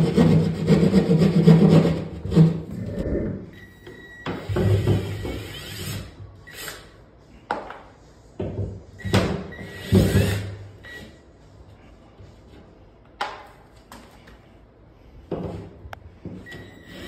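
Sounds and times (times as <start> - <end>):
cordless drill boring into drywall: 4.5 - 6.8.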